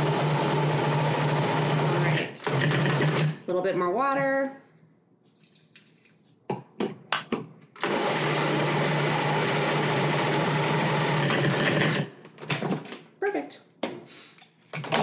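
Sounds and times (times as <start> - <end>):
electric blender humming: 0.0 - 2.4, 7.8 - 11.8.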